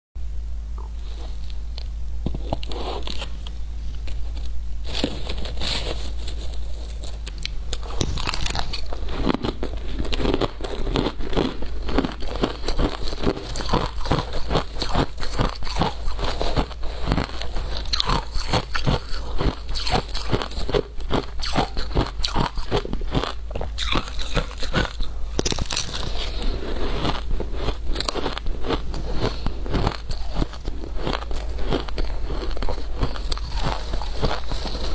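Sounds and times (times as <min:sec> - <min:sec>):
low hum: 0:00.2 - 0:19.8.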